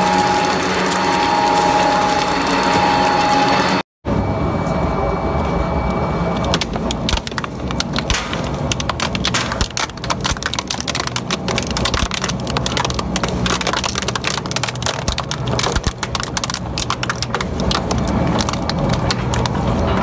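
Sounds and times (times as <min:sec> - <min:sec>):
shredder machine drone: 0:00.0 - 0:20.0
metal cracking and crunching: 0:06.3 - 0:20.0.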